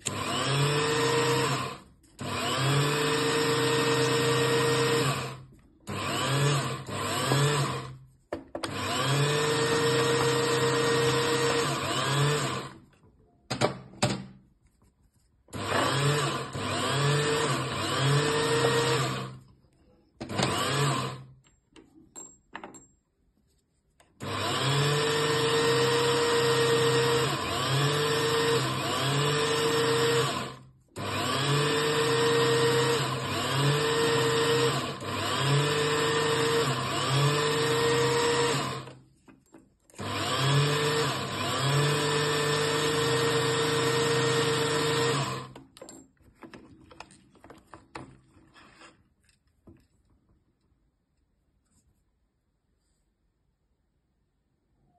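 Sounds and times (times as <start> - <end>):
bench lathe whining: 0.0 - 8.0, 8.6 - 12.8, 15.5 - 19.4, 20.2 - 21.3, 24.2 - 39.0, 40.0 - 45.6
hand tool working bead on lathe: 0.0 - 8.0, 8.6 - 12.8, 15.5 - 19.4, 20.3 - 21.3, 24.2 - 39.0, 40.0 - 45.6.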